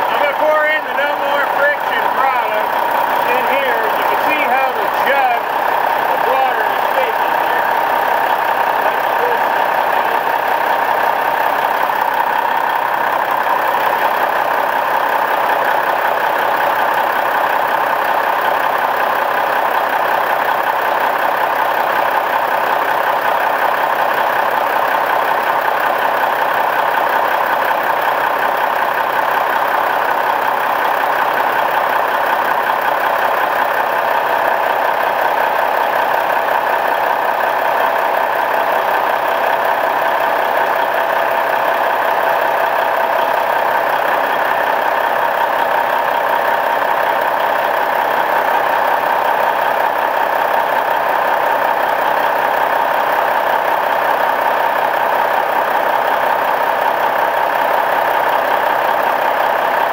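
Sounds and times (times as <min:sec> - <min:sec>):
diesel truck engine idling: 0:00.0 - 0:59.9.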